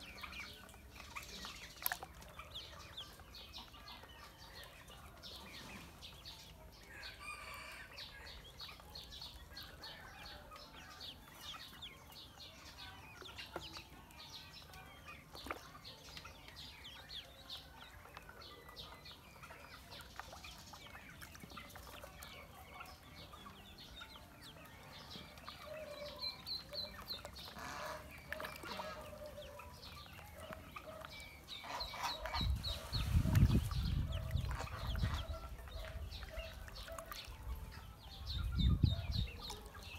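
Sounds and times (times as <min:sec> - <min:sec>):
ducklings peeping: 0:00.0 - 0:39.9.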